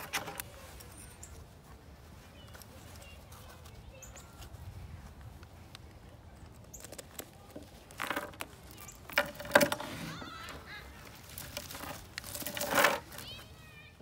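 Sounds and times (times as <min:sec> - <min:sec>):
metal chain rattling: 0:11.3 - 0:13.2.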